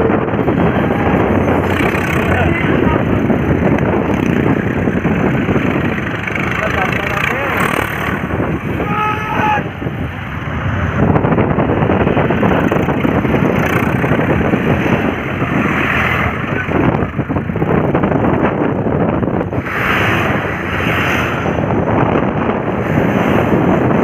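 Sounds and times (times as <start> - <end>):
tractor diesel engines passing: 0.0 - 24.0
wind noise on microphone: 0.0 - 24.0.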